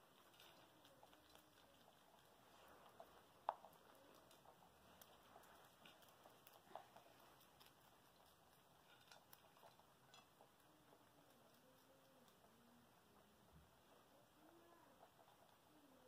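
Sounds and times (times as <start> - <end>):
rabbits chewing vegetables: 0.0 - 16.0.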